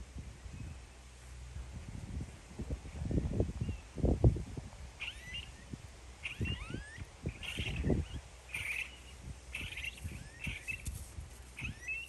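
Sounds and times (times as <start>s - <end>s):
bird chirping: 5.0s - 11.0s, 11.6s - 12.0s
rustling in tall grass: 7.1s - 12.0s.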